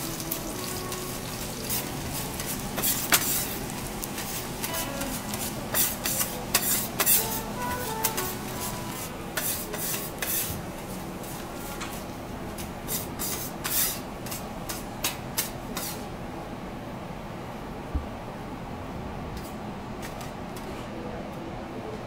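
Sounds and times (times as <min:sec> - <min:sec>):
oil sizzling: 0:00.0 - 0:11.7
metal spatulas scraping on griddle: 0:01.6 - 0:10.6, 0:12.9 - 0:14.8, 0:15.4 - 0:16.0.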